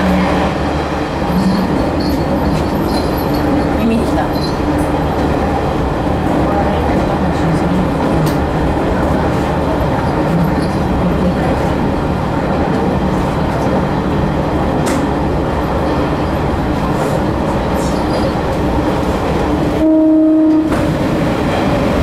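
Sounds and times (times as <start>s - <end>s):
train engine and wheels rumbling: 0.0s - 22.0s
train horn: 19.8s - 20.8s.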